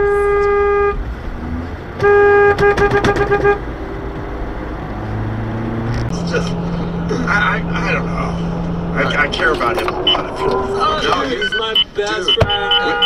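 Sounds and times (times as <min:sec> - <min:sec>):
car horn honking: 0:00.0 - 0:01.0, 0:02.0 - 0:03.7, 0:06.2 - 0:13.0
road rumble: 0:00.0 - 0:13.0.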